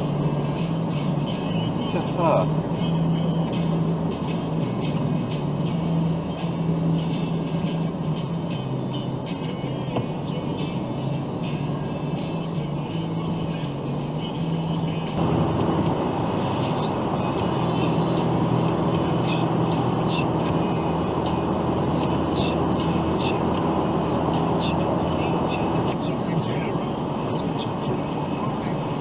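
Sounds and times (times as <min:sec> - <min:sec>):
car road and engine noise: 0:00.0 - 0:29.0.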